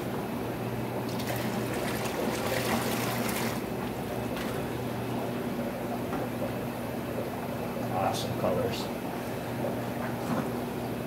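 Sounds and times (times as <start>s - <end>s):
aquarium air pumps humming: 0.0s - 11.0s
water splashing into bucket: 1.1s - 3.7s.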